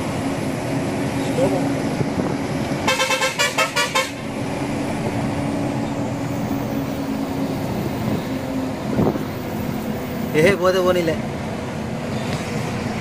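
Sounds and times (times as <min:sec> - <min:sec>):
lorry engine running: 0:00.0 - 0:13.0
road noise: 0:00.0 - 0:13.0
horn short toots: 0:02.9 - 0:04.2.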